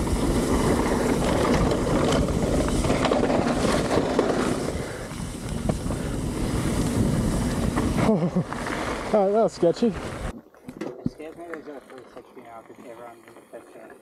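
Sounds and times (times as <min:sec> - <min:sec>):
wind noise on microphone: 0:00.0 - 0:09.1
tyres rumbling over dirt: 0:00.0 - 0:10.3
bike clattering: 0:00.0 - 0:14.0.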